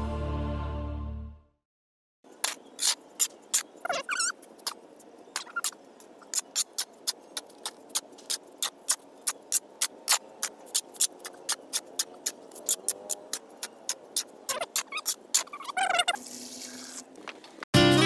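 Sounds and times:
shovel scraping sand and cement: 0:02.4 - 0:04.8, 0:05.4 - 0:17.2.

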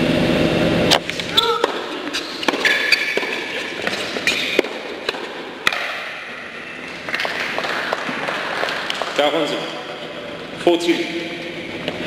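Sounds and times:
tennis ball hit by rackets: 0:00.9 - 0:09.2
shoes squeaking on court: 0:01.0 - 0:10.1.

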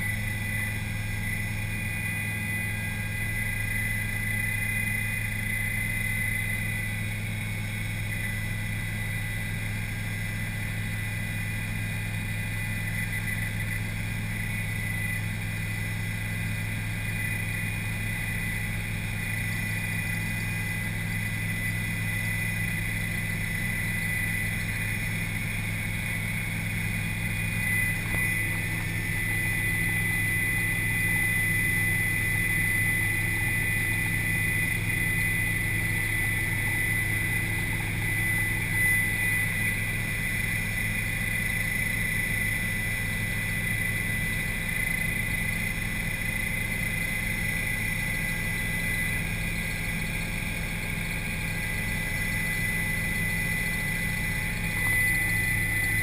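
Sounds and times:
helicopter engine and rotor: 0:00.0 - 0:56.0.

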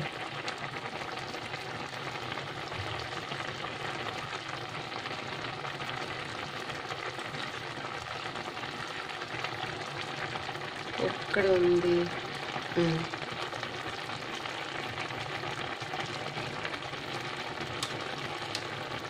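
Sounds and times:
gravy boiling and bubbling: 0:00.0 - 0:19.0.

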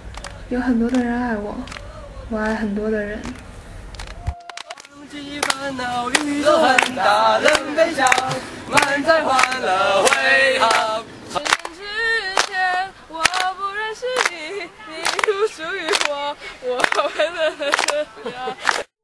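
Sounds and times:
hand claps: 0:00.1 - 0:02.6, 0:03.2 - 0:11.8, 0:12.4 - 0:12.6, 0:13.2 - 0:13.5, 0:14.1 - 0:14.4, 0:15.0 - 0:16.2, 0:16.8 - 0:18.9
group singing together: 0:04.7 - 0:18.9.

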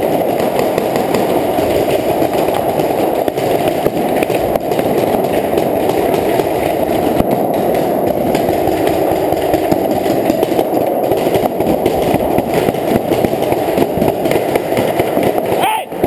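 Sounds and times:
paintball markers firing: 0:00.0 - 0:15.8.

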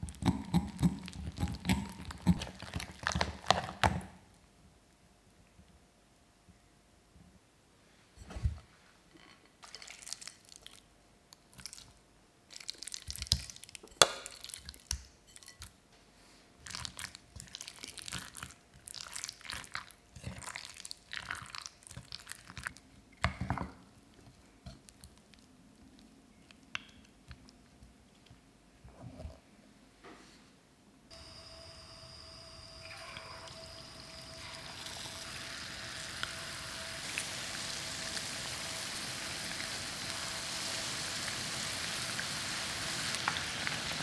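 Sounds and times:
wet squelching of batter: 0:09.6 - 0:14.9, 0:16.6 - 0:22.9.

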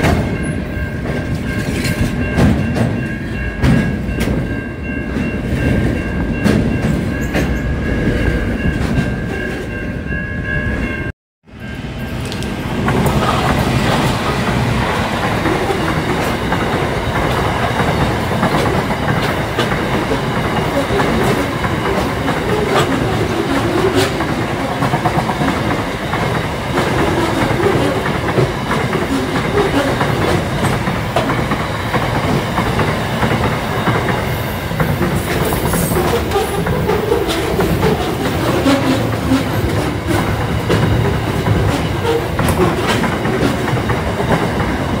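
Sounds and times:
train wheels rumbling on rail: 0:00.0 - 0:45.0
wheels clicking over rail joints: 0:12.2 - 0:45.0.

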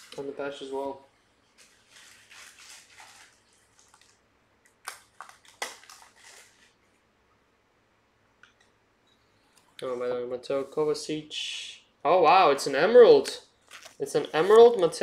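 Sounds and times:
faint rustling of cards: 0:00.0 - 0:04.2, 0:05.0 - 0:07.0, 0:13.5 - 0:15.0.

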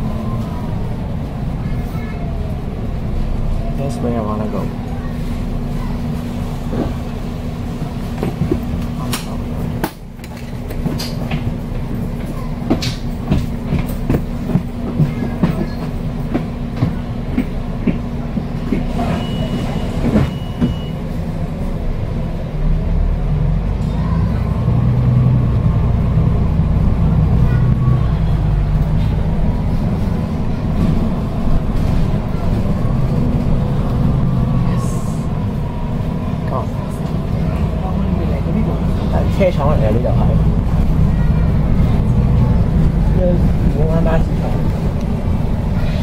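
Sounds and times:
bus engine and road noise drone: 0:00.0 - 0:46.0
bodywork rattles and clicks: 0:08.1 - 0:19.0.

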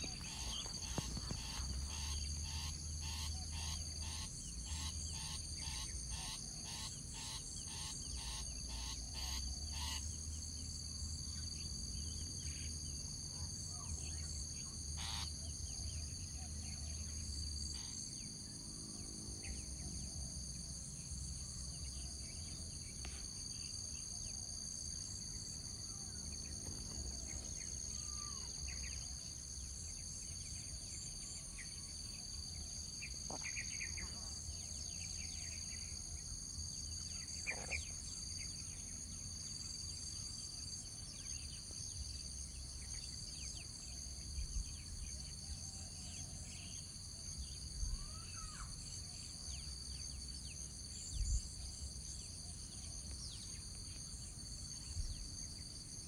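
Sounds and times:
insect chorus: 0:00.0 - 0:56.0
faint bird chirps: 0:25.8 - 0:29.3, 0:37.1 - 0:38.5, 0:47.4 - 0:49.6.

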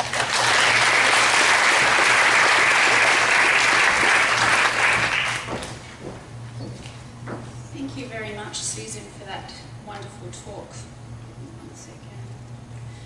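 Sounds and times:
audience applauding: 0:00.0 - 0:05.7.

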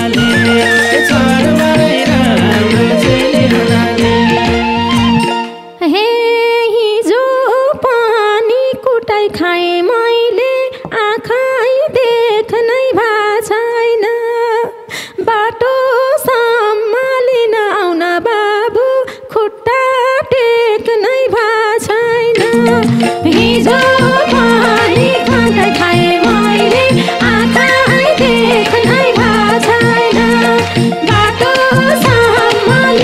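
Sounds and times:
ornamented folk melody: 0:00.0 - 0:05.8, 0:22.3 - 0:33.0.

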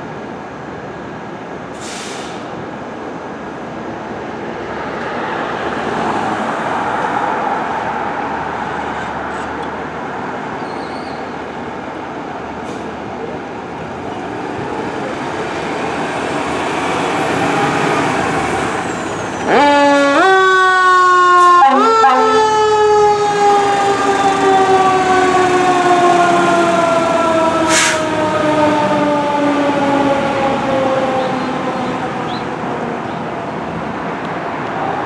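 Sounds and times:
short hiss: 0:01.7 - 0:02.5
fire engine engine pulling away: 0:01.7 - 0:02.7, 0:12.5 - 0:34.0
siren wailing: 0:19.4 - 0:33.1.

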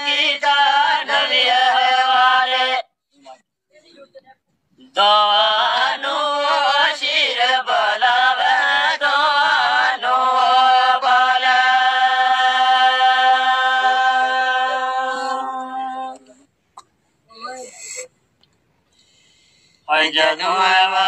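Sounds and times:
man singing unaccompanied: 0:04.8 - 0:16.3, 0:19.9 - 0:21.0.

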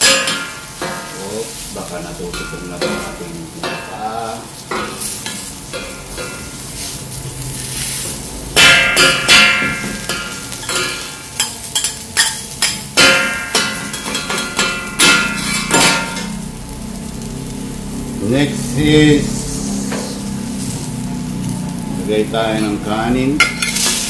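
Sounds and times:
metal spatulas clanking on griddle: 0:00.0 - 0:01.2, 0:02.2 - 0:07.0, 0:08.6 - 0:16.4, 0:22.6 - 0:24.0
fish frying in oil: 0:00.0 - 0:24.0.

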